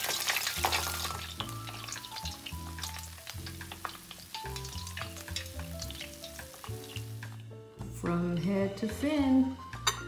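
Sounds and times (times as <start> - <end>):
oil sizzling and crackling: 0.0 - 7.9
slow background music: 0.0 - 10.0.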